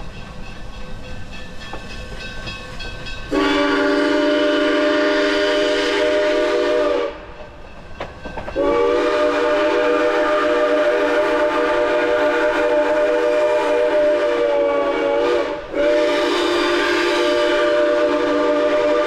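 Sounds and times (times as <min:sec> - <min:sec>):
steam locomotive whistle blasts: 0:03.3 - 0:07.4, 0:08.6 - 0:19.0.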